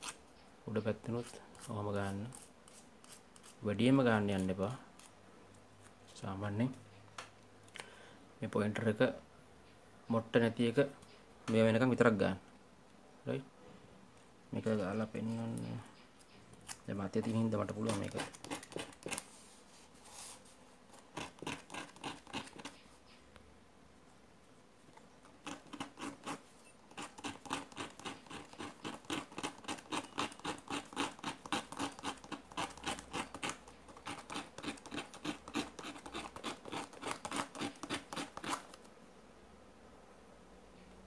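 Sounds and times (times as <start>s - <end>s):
metal scratching on sandpaper: 1.1s - 3.6s, 17.1s - 22.9s, 25.4s - 38.8s.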